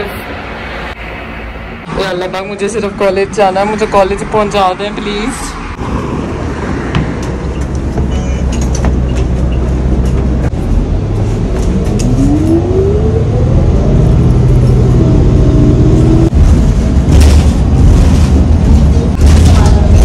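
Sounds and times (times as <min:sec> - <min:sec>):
bus engine rumble: 0:00.0 - 0:20.0
engine whine rising in pitch: 0:10.5 - 0:16.4.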